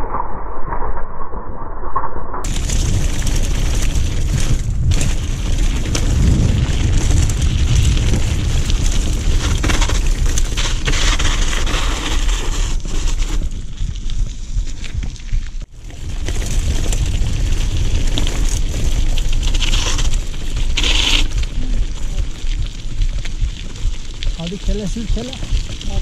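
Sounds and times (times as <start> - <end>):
wind buffeting microphone: 2.4 - 10.9
bike rattling: 2.4 - 26.0
tyres crunching on gravel: 2.5 - 26.0.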